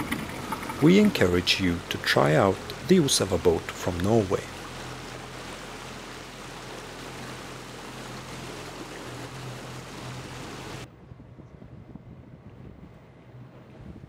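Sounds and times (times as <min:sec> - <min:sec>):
water rushing past a motorboat: 0:00.0 - 0:11.0
boat engine humming: 0:00.0 - 0:14.0
wind buffeting the microphone: 0:09.1 - 0:14.0.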